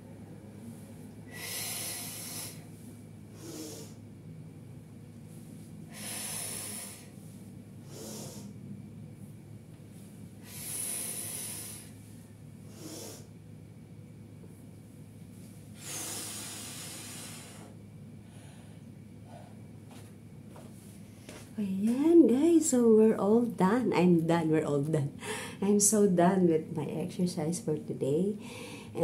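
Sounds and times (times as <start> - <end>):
woman breathing hard: 1.2 - 2.7, 3.3 - 4.0, 5.8 - 7.2, 7.8 - 8.6, 10.4 - 13.3, 15.8 - 19.7, 25.2 - 25.6, 28.4 - 29.0.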